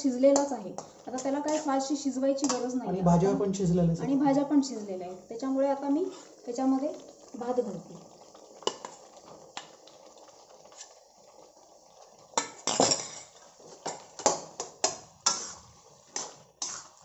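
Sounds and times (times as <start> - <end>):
metal spatula scraping pan: 0.4 - 2.7, 15.2 - 17.0.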